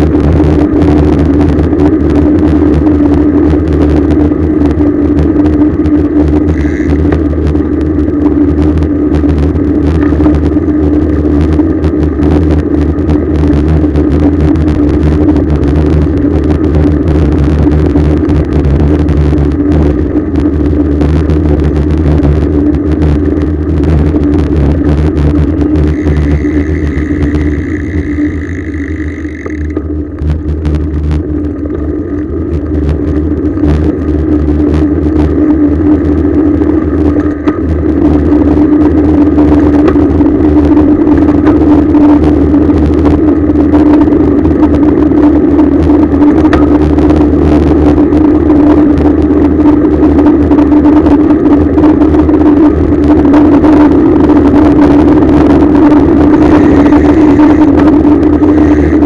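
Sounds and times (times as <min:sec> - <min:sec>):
high steady squeal: 0:00.0 - 0:59.0
road rumble: 0:00.0 - 0:59.0
wind rush: 0:00.0 - 0:59.0.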